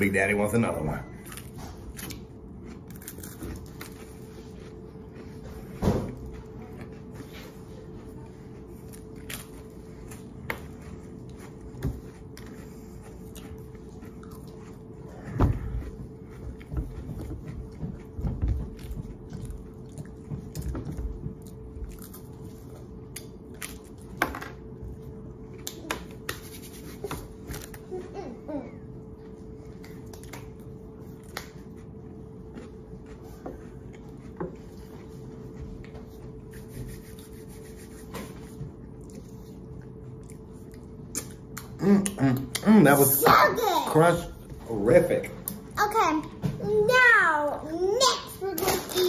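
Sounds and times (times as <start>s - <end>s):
crackers crunching: 1.2s - 7.1s, 8.5s - 16.7s, 21.4s - 24.2s, 25.4s - 28.1s
quiet chewing: 1.2s - 24.2s, 24.9s - 42.7s.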